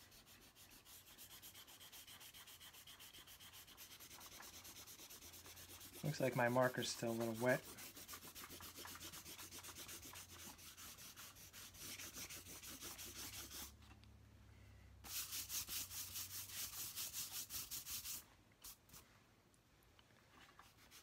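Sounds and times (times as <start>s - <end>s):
eraser rubbing on paper: 0.0s - 13.8s, 15.1s - 19.0s, 20.6s - 21.0s.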